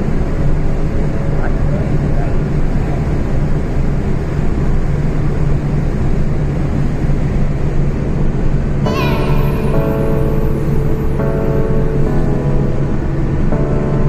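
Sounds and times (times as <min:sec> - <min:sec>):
car driving on highway: 0:00.0 - 0:14.0
music: 0:08.9 - 0:14.0.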